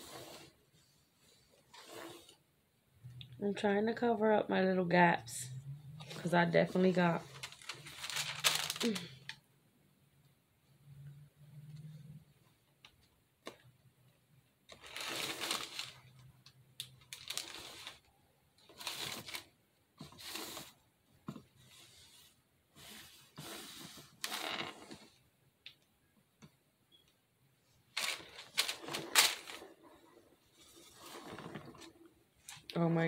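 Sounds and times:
plastic piping bag rustling: 6.1 - 9.4, 14.7 - 16.2, 16.8 - 19.6, 27.9 - 30.0.

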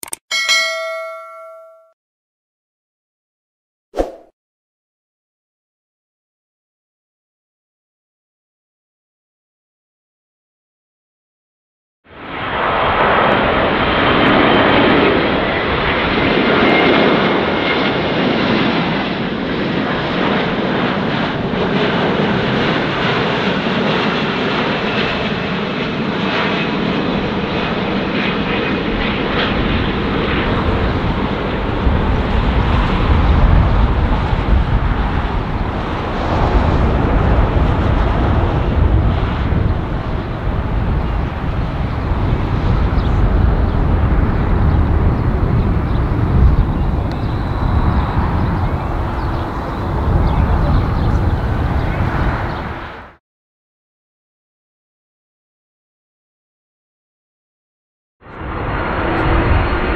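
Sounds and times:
jet engines on approach: 12.1 - 53.2, 58.2 - 59.9.

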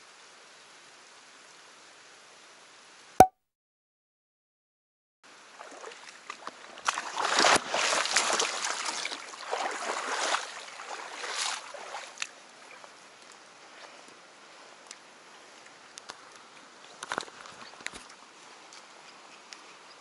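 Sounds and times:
water splashing and sloshing: 5.4 - 14.2, 14.8 - 19.0.

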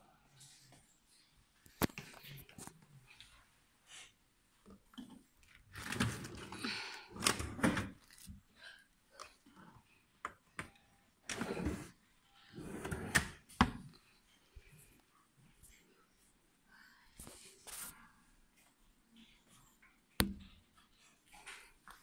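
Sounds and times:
drawer sliding on runners: 11.3 - 11.9, 12.5 - 13.4.

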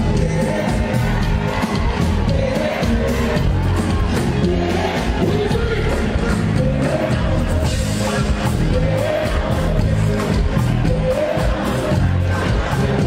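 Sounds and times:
crowd noise: 0.0 - 13.0
singing over a heavy bass beat: 0.0 - 13.0.

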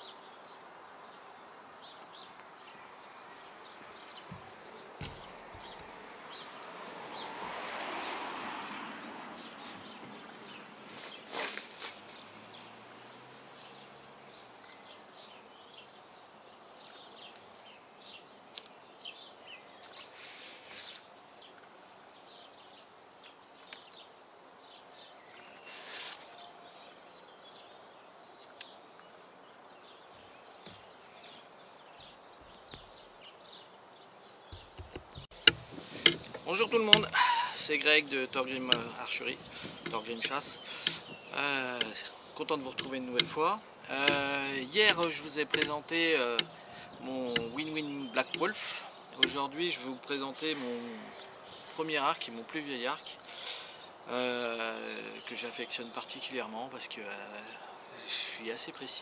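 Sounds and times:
pulsing insect chirp: 26.4 - 50.0
sharp knock: 34.6 - 37.2.

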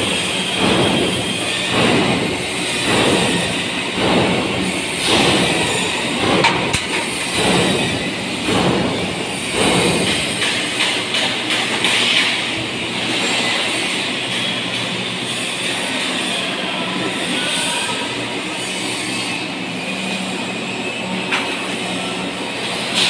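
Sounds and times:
construction site rumbling clatter: 0.0 - 15.1.

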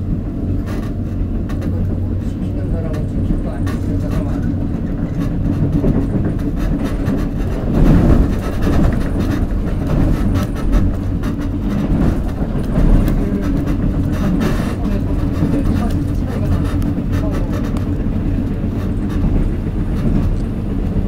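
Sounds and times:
subway train wheels rumbling on rails: 0.0 - 21.0.

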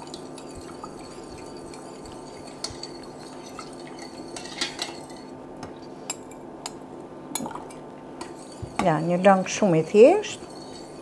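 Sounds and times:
steady low hum: 0.0 - 11.0
metal spoon scraping bowl: 0.2 - 5.3, 8.2 - 11.0.

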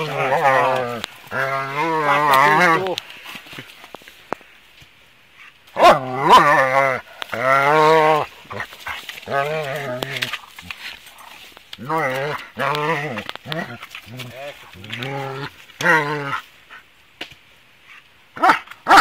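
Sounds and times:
dog grumbling calls: 0.0 - 3.0, 5.7 - 16.4.

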